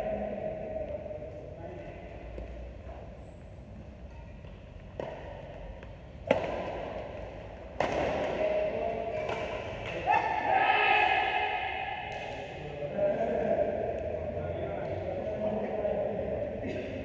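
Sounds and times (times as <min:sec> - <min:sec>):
rackets hitting shuttlecock: 0:04.1 - 0:10.4, 0:11.8 - 0:12.6.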